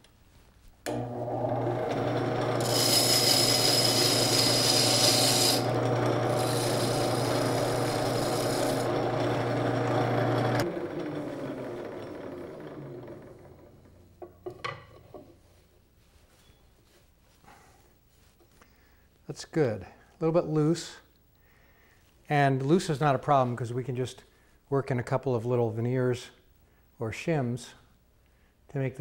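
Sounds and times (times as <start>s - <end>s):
lathe motor humming: 0.9s - 13.9s
tool bit scraping wood: 1.9s - 10.7s
motor spinning down: 4.2s - 13.9s.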